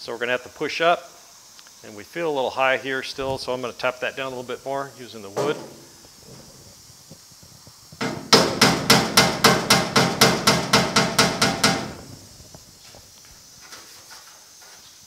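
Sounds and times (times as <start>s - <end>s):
hammer tapping sheet steel: 8.0s - 12.2s.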